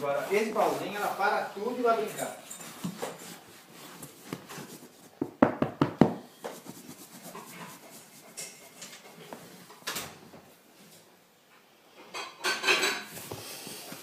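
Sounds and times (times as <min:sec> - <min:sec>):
soft rubbing and handling noise: 0:00.0 - 0:05.4, 0:06.0 - 0:11.6, 0:12.8 - 0:14.0.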